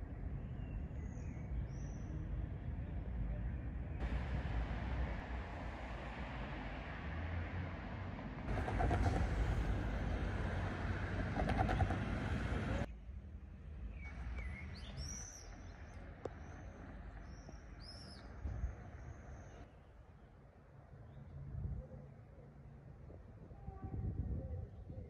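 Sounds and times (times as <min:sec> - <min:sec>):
road traffic: 0:00.0 - 0:23.4
vehicles passing: 0:00.0 - 0:23.6.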